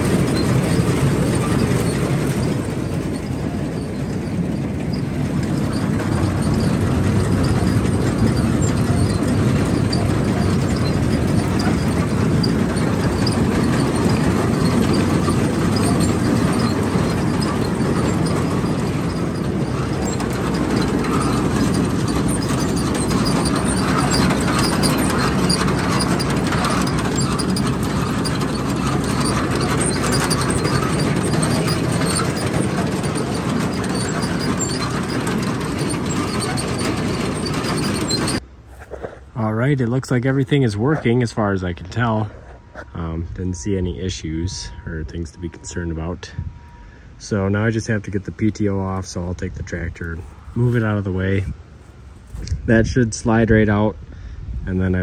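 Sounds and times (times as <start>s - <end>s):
corn picker running: 0.0s - 38.4s
tractor engine: 0.0s - 53.7s.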